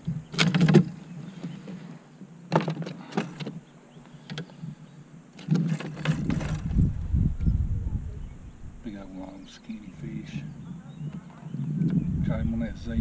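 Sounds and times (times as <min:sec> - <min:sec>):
clattering on plastic kayak hull: 0:00.3 - 0:01.7, 0:02.5 - 0:03.6, 0:05.4 - 0:06.8.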